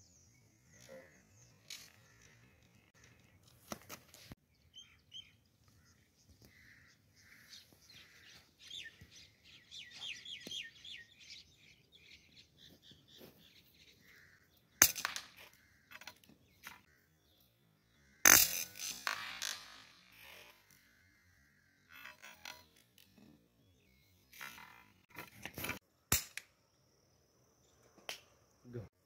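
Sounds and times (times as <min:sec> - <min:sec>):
small birds chirping: 0:00.0 - 0:18.2.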